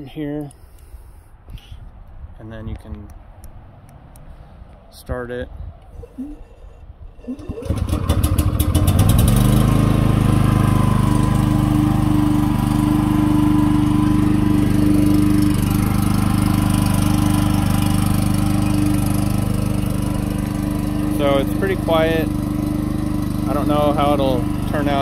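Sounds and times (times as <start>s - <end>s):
generator engine starting and running: 6.0s - 25.0s.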